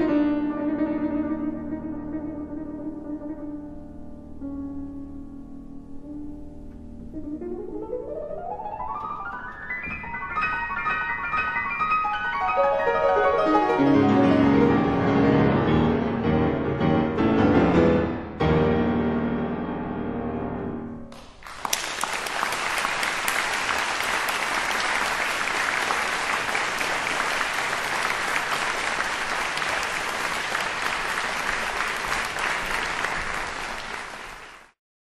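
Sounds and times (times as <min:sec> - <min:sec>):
grand piano chords: 0:00.0 - 0:21.2
audience applause: 0:21.2 - 0:34.8.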